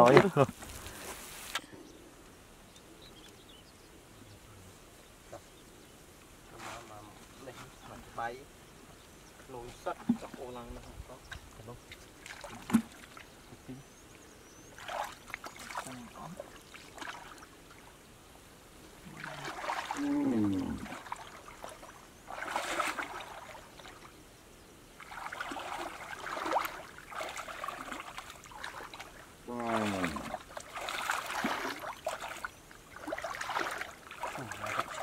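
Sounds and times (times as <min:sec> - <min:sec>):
water splashing and sloshing: 0:00.0 - 0:01.6, 0:09.3 - 0:18.1, 0:18.7 - 0:24.3, 0:24.9 - 0:35.0.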